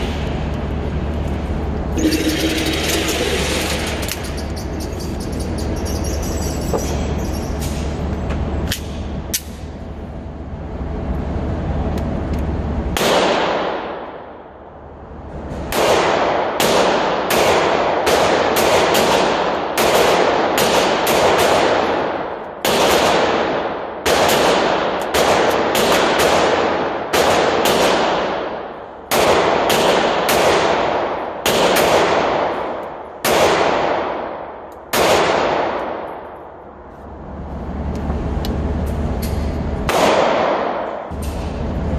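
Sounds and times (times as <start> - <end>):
pistol shots with echo: 13.0 - 14.3, 15.7 - 36.4, 39.9 - 41.1.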